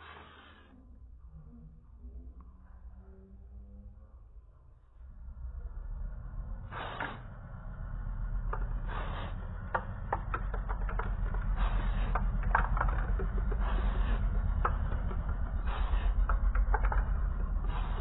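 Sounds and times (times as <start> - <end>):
low rumble: 0.3 - 18.0.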